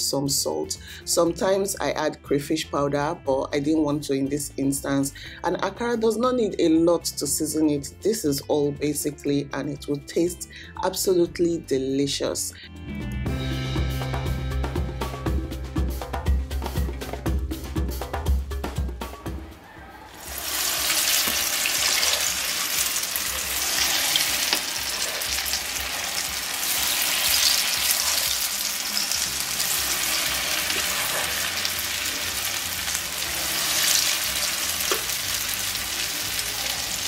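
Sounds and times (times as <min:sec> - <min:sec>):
oil sizzling while deep-frying: 0:20.2 - 0:37.0.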